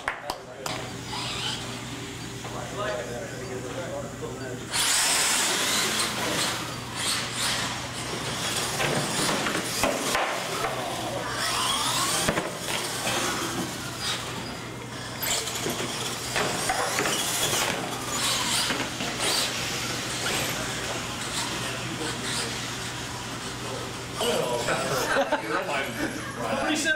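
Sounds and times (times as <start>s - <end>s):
toy truck motors whining: 0.6s - 25.9s
tyre and chassis noise: 4.7s - 24.2s.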